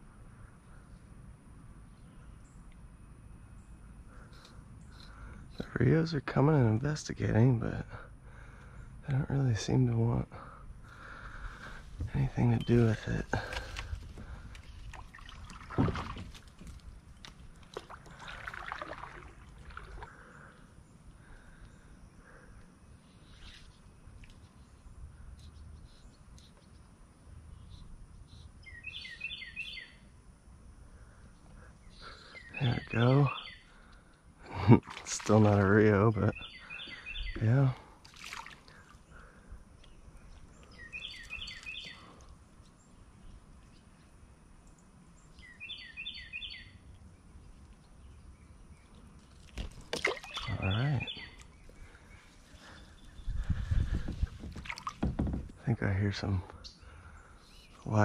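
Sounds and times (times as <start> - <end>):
bird singing: 0.0 - 58.0
creek ambience: 0.0 - 58.0
knocks of kayak and gear: 53.9 - 55.6.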